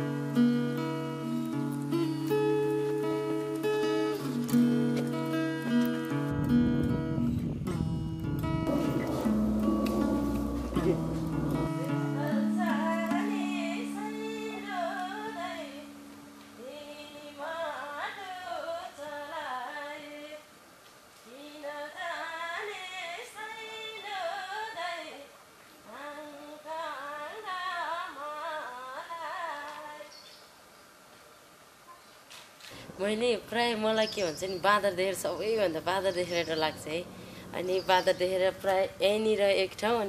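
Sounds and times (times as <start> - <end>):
acoustic guitar chord: 0.0 - 18.0
woman singing: 11.6 - 16.0, 16.6 - 20.5, 21.2 - 30.2, 33.0 - 40.0.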